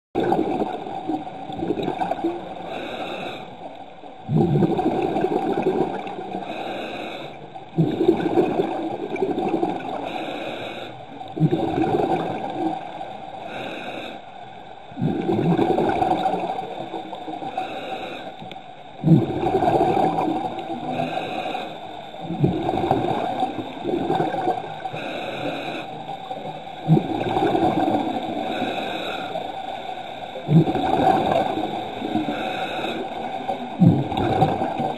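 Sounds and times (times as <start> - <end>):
exhaled bubbles rushing: 0.2 - 2.6, 4.2 - 6.4, 7.8 - 10.0, 11.3 - 13.0, 14.9 - 17.0, 19.0 - 21.1, 22.2 - 24.9, 26.3 - 28.6, 30.4 - 32.3, 33.1 - 34.9
regulator inhale hiss: 2.4 - 3.9, 6.2 - 8.0, 9.8 - 11.4, 12.8 - 14.6, 16.2 - 18.8, 20.1 - 22.4, 23.1 - 26.9, 27.5 - 33.8.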